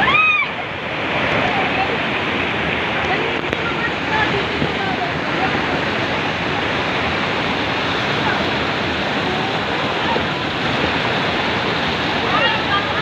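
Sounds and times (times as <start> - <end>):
water cascading into a pool: 0.0 - 13.0.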